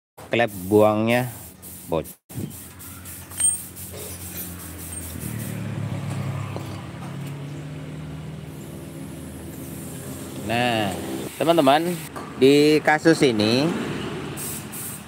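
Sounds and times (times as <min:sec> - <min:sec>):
engine humming: 0:02.7 - 0:11.4.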